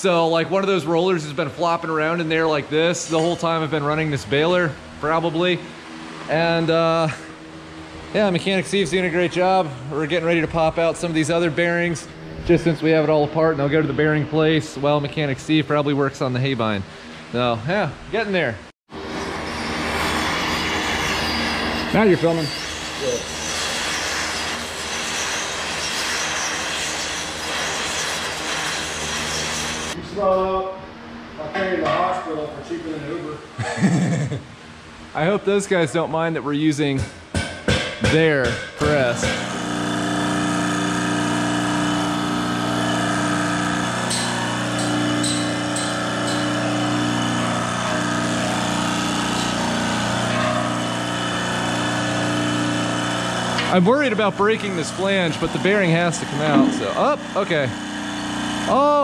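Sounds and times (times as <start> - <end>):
hydraulic pump motor running: 38.9 - 58.7.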